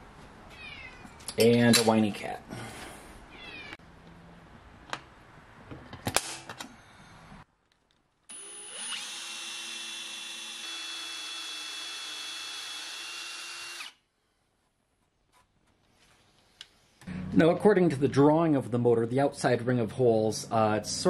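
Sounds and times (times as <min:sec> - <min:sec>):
cordless drill drilling steel: 0:08.3 - 0:14.0.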